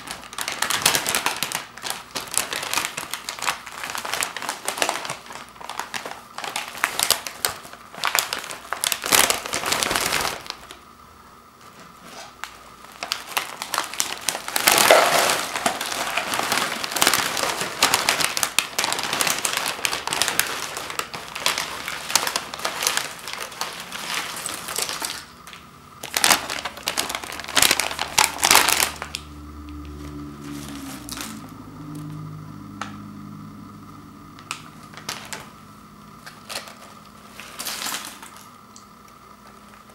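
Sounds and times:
chip bag crinkling: 0.0s - 10.8s, 11.6s - 39.9s
chips tumbling into bowl: 13.1s - 29.2s, 36.2s - 38.5s.

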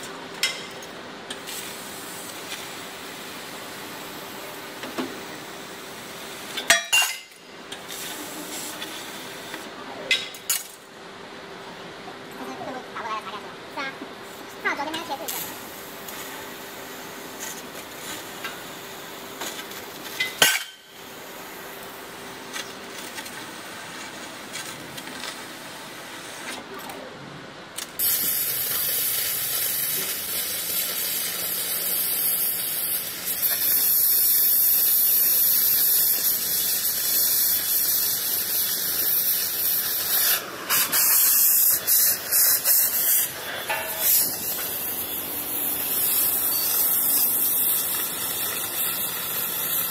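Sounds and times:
laser cutter hiss and hum: 0.0s - 11.0s, 14.2s - 27.1s, 27.7s - 49.9s
cutting torch oxygen jet hissing: 1.3s - 6.6s, 7.7s - 9.7s, 27.8s - 49.9s.

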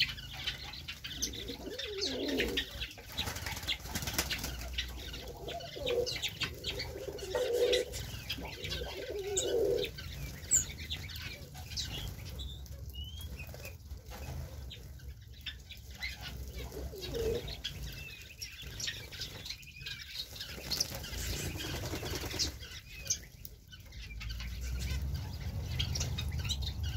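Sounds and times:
pigeons cooing: 0.0s - 12.9s, 15.9s - 19.4s
finches and canaries chirping: 0.0s - 26.9s
wings flapping: 2.4s - 5.0s, 20.4s - 22.8s.

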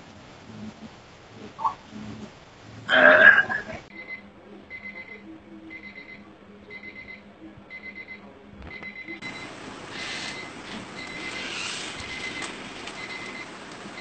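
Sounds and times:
faint steady hum: 0.0s - 14.0s
rapid high electronic beeps: 9.2s - 14.0s
steady hiss: 9.2s - 14.0s.

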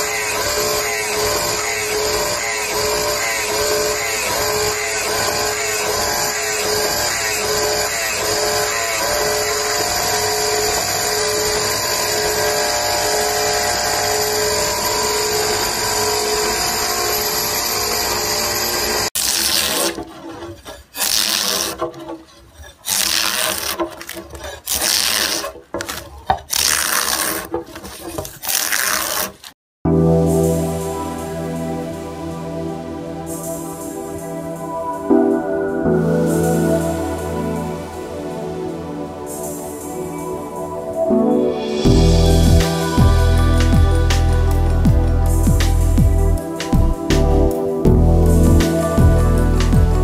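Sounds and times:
grinding machine running: 0.0s - 20.0s
hand tool shaving wood: 0.0s - 29.6s.

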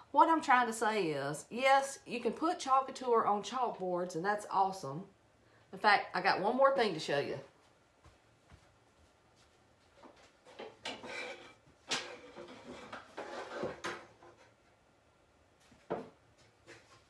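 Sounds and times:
objects rustling and clattering: 9.4s - 14.7s, 15.6s - 17.0s.

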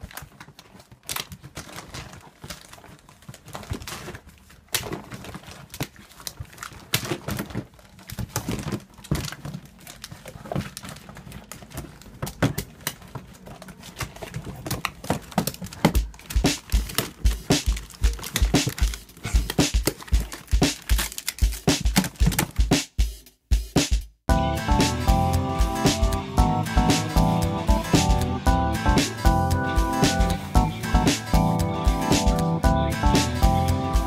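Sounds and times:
paper crinkling and rustling: 0.0s - 22.6s
cardboard rolls knocking on plastic: 14.0s - 22.7s.

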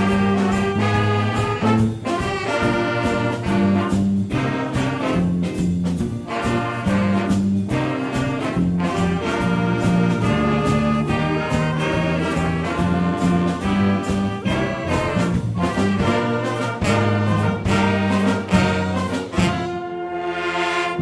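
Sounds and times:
drum kit and cymbals: 0.0s - 21.0s
trumpets and trombones playing chords: 0.0s - 21.0s.

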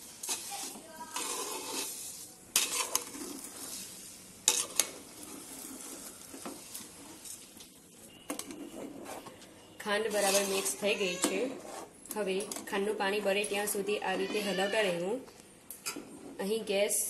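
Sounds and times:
spatula scraping metal pot: 0.2s - 7.3s, 10.0s - 12.0s.

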